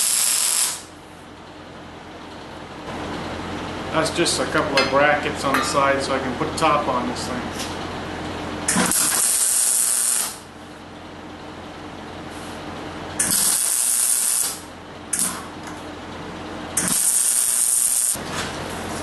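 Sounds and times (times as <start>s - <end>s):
welder arc crackling: 0.0s - 0.9s, 8.7s - 10.5s, 13.2s - 15.4s, 16.8s - 18.2s.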